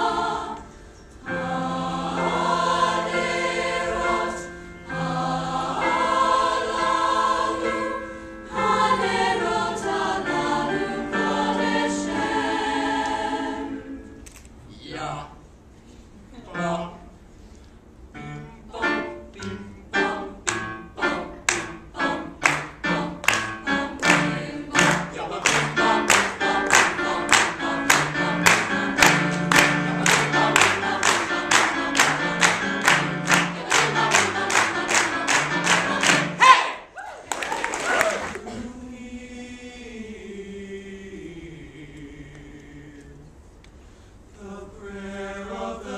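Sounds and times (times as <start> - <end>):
choir singing chords: 0.0 - 14.3, 18.1 - 36.9, 38.3 - 43.4, 44.3 - 45.9
hands clapping a steady beat: 21.5 - 21.8, 22.4 - 36.4.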